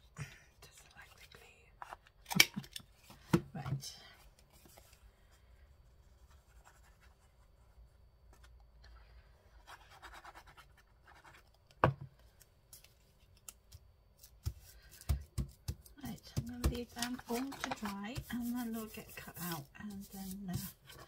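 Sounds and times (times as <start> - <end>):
paper scratching on tabletop: 16.7 - 21.0.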